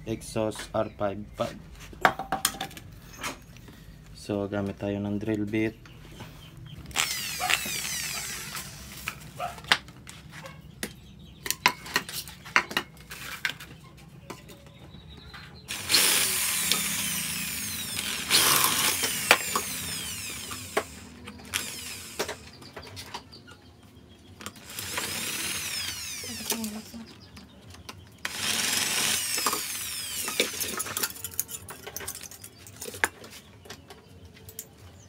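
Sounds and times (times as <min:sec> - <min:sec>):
drill bit clicking into chuck: 0:06.9 - 0:09.2, 0:15.7 - 0:22.4, 0:24.6 - 0:26.8, 0:28.2 - 0:31.4
electric drill drilling into metal: 0:06.9 - 0:09.3, 0:15.7 - 0:22.6, 0:24.6 - 0:27.0, 0:28.2 - 0:31.6.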